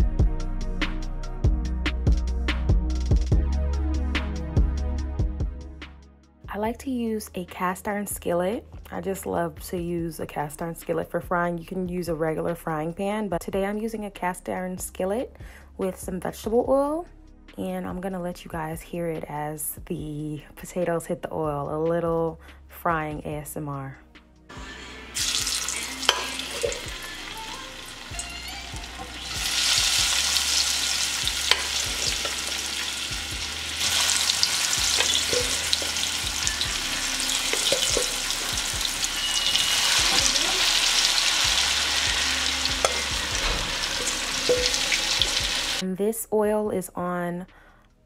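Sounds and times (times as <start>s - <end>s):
potatoes sizzling in oil: 24.6s - 45.8s
wooden spoon knocking pan: 31.4s - 32.6s, 34.8s - 36.0s, 37.4s - 38.7s, 42.8s - 45.6s.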